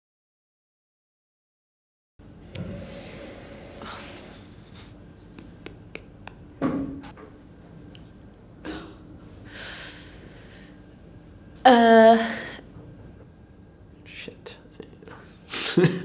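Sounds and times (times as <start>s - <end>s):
woman breathing quietly: 9.4s - 10.8s.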